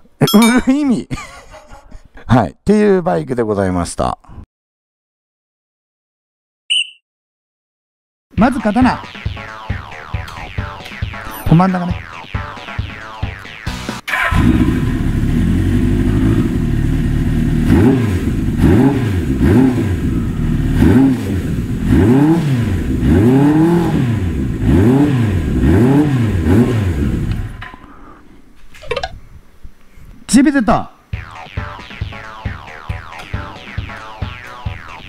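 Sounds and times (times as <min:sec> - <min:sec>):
person speaking: 0:00.0 - 0:01.1, 0:11.2 - 0:12.0
motorcycle engine revving: 0:14.1 - 0:27.6.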